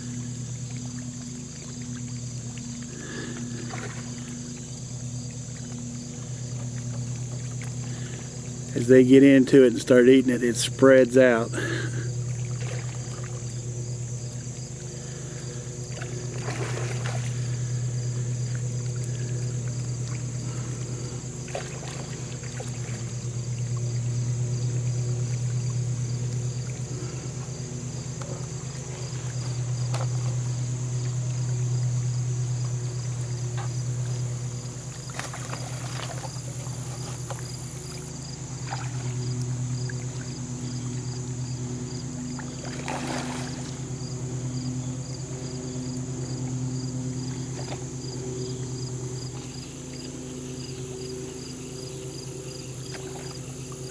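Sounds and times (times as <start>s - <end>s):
fish splashing at water surface: 0.0s - 8.6s, 11.5s - 13.6s, 14.3s - 24.0s, 35.0s - 40.4s, 42.3s - 43.9s
insects chirring: 0.0s - 53.9s
low motor hum: 0.0s - 53.9s.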